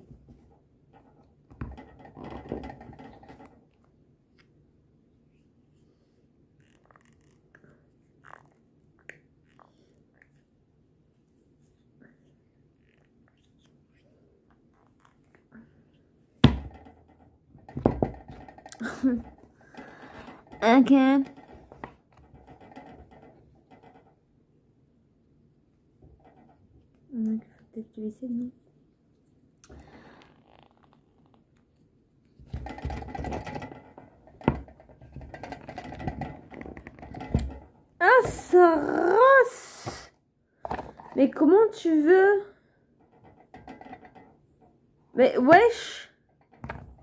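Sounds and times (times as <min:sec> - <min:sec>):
knocks on tabletop: 0:16.4 - 0:17.0.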